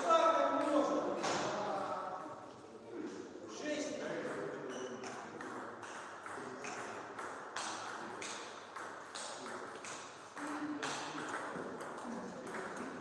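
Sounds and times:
table tennis ball taps: 4.2 - 13.0.

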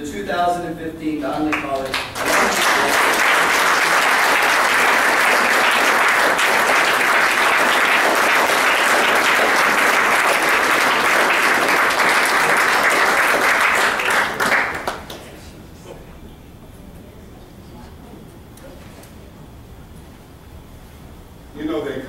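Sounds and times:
audience applauding: 1.5 - 15.3.

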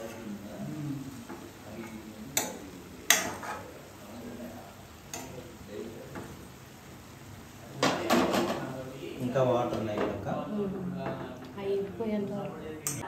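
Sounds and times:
spoon scraping frying pan: 0.0 - 0.4, 1.2 - 4.3.

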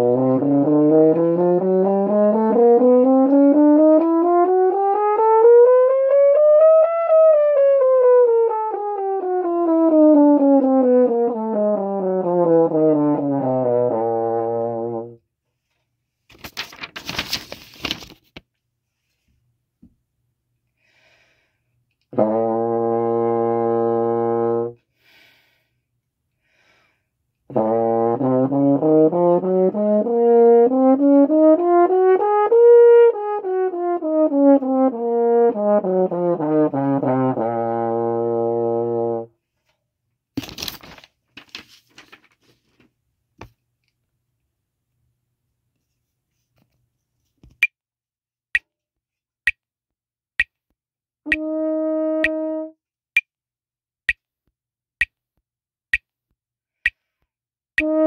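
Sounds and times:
french horn playing scales: 0.0 - 15.2, 22.1 - 24.8, 27.5 - 39.3, 51.3 - 52.8, 57.8 - 58.0
short breath: 20.8 - 21.8, 24.9 - 27.2.

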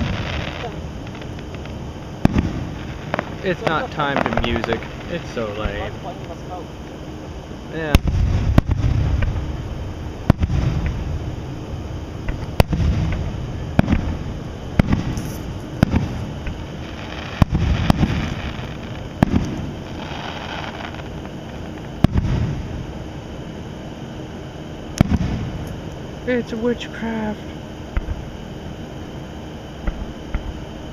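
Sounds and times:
fireworks crackle: 0.0 - 6.6, 12.3 - 22.7
fireworks bursting: 0.0 - 23.0, 24.9 - 25.7
low rolling rumble: 0.0 - 23.7.

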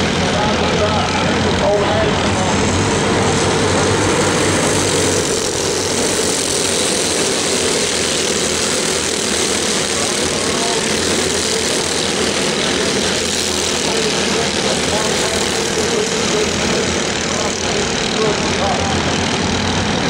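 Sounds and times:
go-kart engines droning: 0.0 - 20.0.

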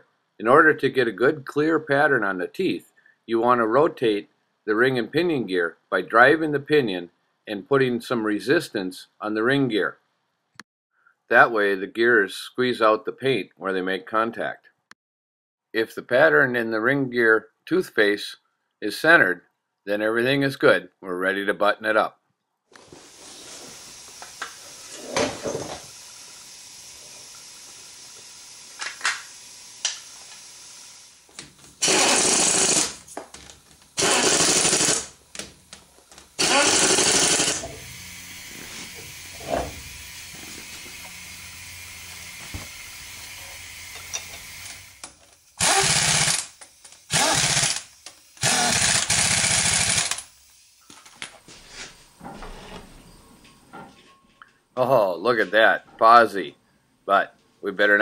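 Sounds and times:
impact wrench bursts: 23.1 - 33.2, 33.9 - 50.4.

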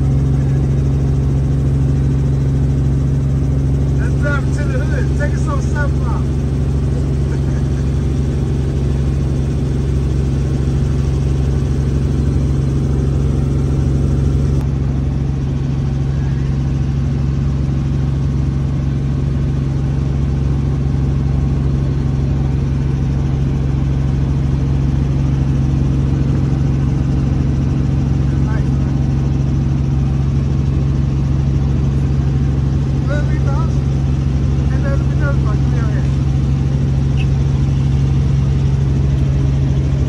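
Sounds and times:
helicopter engine and rotor droning: 0.0 - 40.0.

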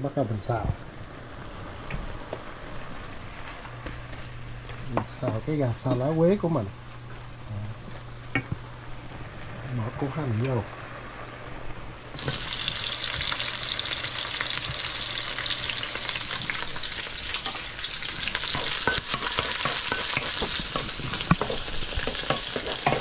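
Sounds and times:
onion sizzling in oil: 0.1 - 23.0
utensil scraping pan: 18.4 - 23.0.

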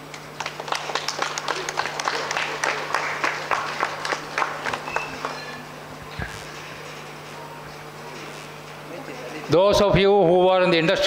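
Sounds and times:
audience clapping: 0.0 - 5.5.

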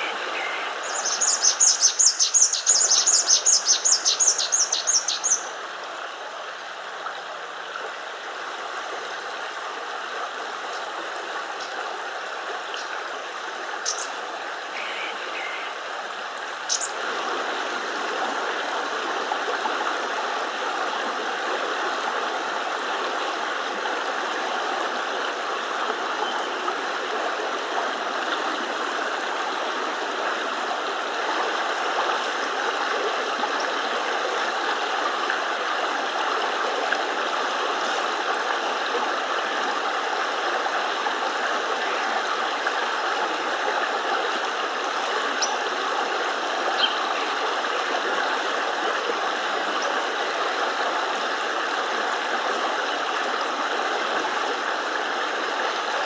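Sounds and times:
creek flowing: 0.0 - 56.0.

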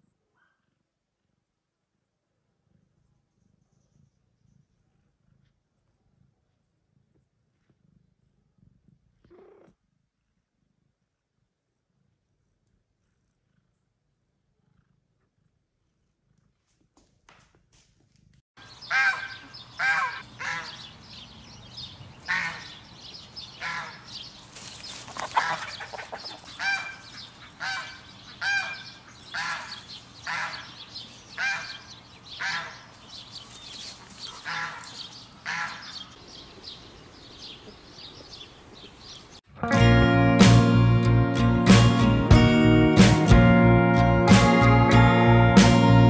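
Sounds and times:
ducks and chickens calling: 18.6 - 21.3, 22.0 - 24.3, 25.0 - 32.9, 34.0 - 36.8.

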